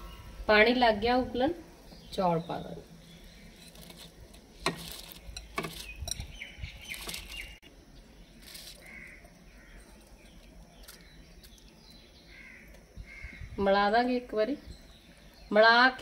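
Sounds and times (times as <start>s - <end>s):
faint bird calls: 8.5s - 13.6s.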